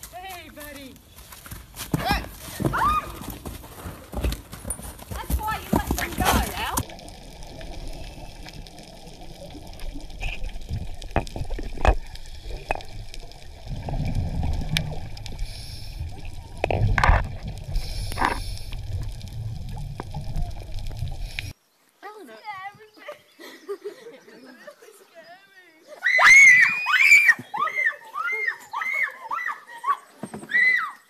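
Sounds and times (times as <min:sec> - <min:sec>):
water gurgling and bubbling: 0:06.4 - 0:21.5
muffled underwater rumble: 0:06.8 - 0:21.5.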